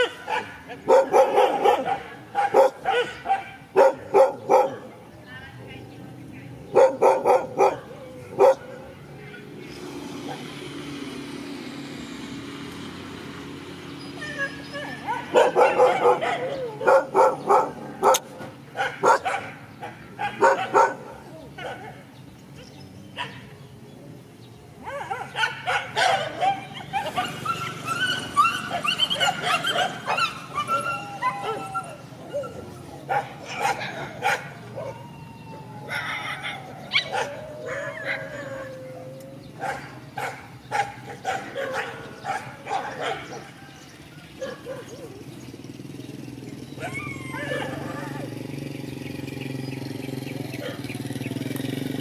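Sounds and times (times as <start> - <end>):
dogs yelping and yipping: 0.0 - 5.0, 6.7 - 10.5, 13.8 - 23.5, 24.8 - 45.6, 46.5 - 48.6, 50.5 - 51.5
dogs barking: 0.0 - 5.2, 6.6 - 10.6, 14.1 - 23.6, 24.8 - 45.6, 46.5 - 48.6, 49.6 - 51.6
dog whining: 14.1 - 18.2, 26.4 - 32.9, 34.8 - 39.6, 46.8 - 48.2.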